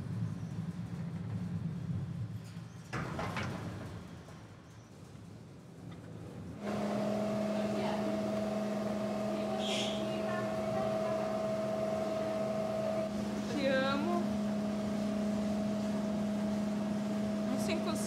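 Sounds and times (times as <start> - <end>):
washing machine humming: 6.5 - 18.0.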